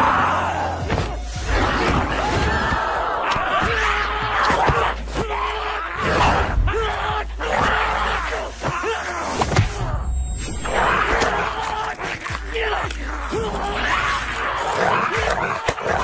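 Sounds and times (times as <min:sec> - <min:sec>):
crowd shouting: 0:00.0 - 0:16.0
fighters grunting: 0:10.6 - 0:16.0.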